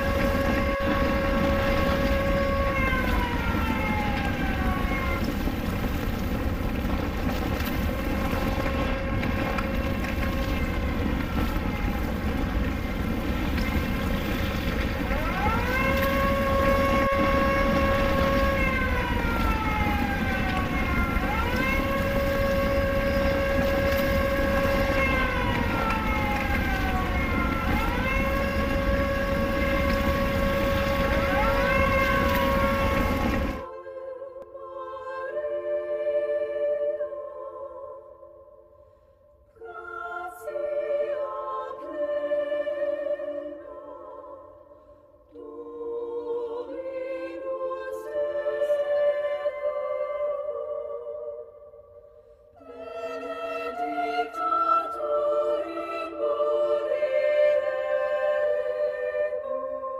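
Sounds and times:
air-raid siren wailing: 0:00.0 - 0:38.4, 0:52.6 - 0:59.9
steady low noise: 0:00.0 - 0:59.9.

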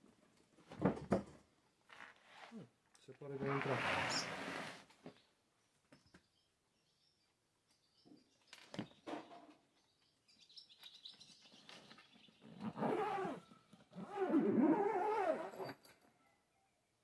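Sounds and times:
zipper on fabric bag: 0:03.4 - 0:04.9, 0:12.4 - 0:15.8.

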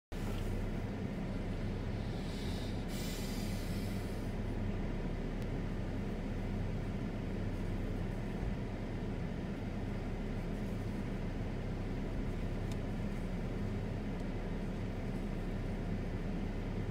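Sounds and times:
low mechanical rumble and hum: 0:00.1 - 0:16.9
hiss: 0:02.0 - 0:04.3.

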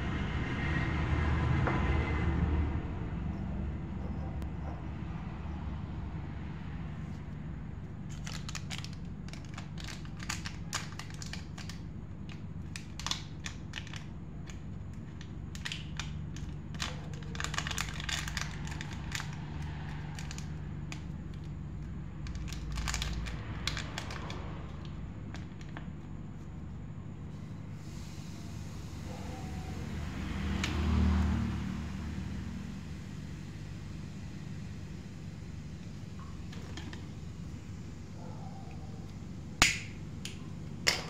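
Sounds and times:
foil sachet crinkling: 0:08.1 - 0:14.6, 0:15.5 - 0:20.4, 0:22.3 - 0:24.4.

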